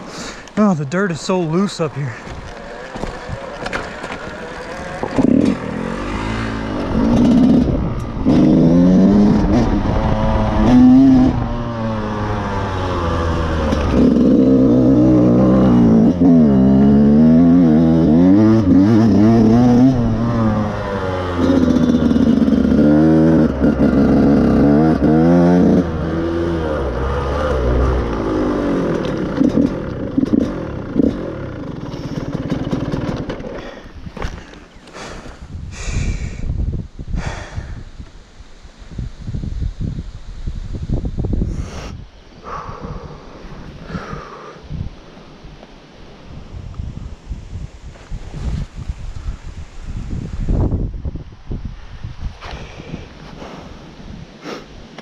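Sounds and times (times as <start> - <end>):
dirt bike engine revving: 1.5 - 35.9.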